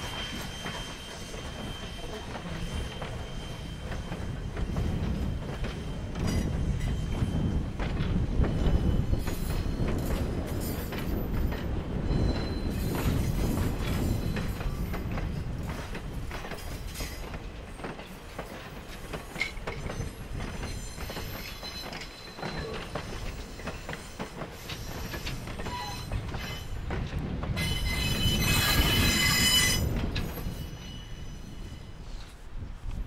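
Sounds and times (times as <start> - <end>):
train coaches rumbling on track: 0.0 - 33.0
high-pitched wheel squeal: 25.6 - 26.2, 27.6 - 29.9.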